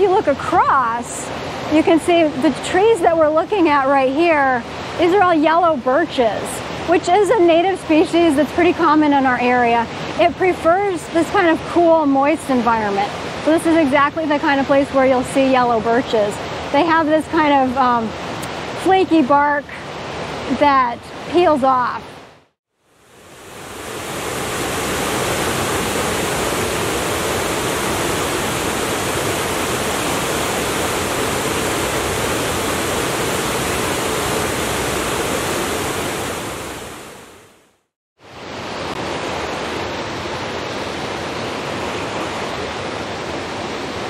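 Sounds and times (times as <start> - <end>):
waterfall rushing over rocks: 23.1 - 37.4, 38.2 - 44.0.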